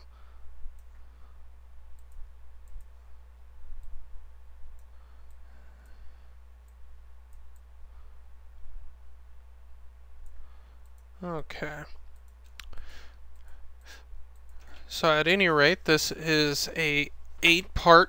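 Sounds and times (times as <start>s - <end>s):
low electrical hum: 0.0s - 18.0s
computer mouse clicks: 0.7s - 1.0s, 1.9s - 3.0s, 6.6s - 7.7s, 10.2s - 11.2s, 12.1s - 14.8s.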